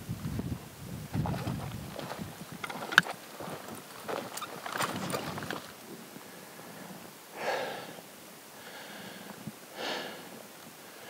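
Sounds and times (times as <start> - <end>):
footsteps crunching on gravel: 1.1 - 5.9
person breathing hard: 6.2 - 11.0.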